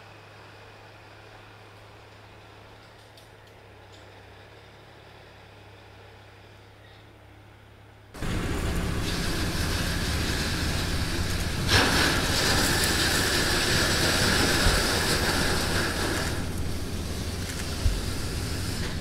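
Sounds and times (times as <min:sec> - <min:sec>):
spraying water and grit: 0:08.2 - 0:19.0
tyres on gravel: 0:08.2 - 0:19.0
vehicle engine running: 0:08.2 - 0:19.0.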